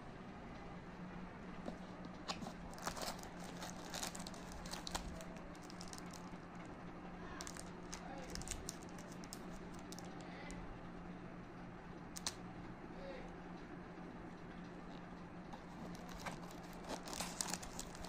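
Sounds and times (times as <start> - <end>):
faint steady hum: 0.0 - 18.0
wrapper crinkling and clicking: 2.2 - 6.4, 7.4 - 10.2, 12.2 - 12.4, 15.6 - 18.0.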